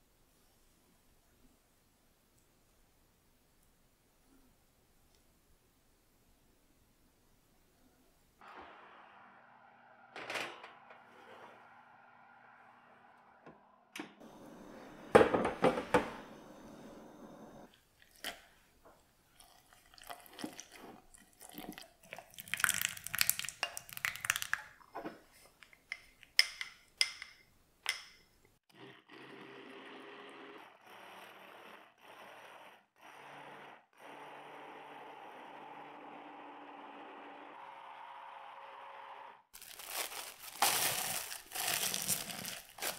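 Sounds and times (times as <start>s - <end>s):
liquid pouring into plastic jug: 19.4s - 24.6s
immersion blender running: 28.7s - 39.4s.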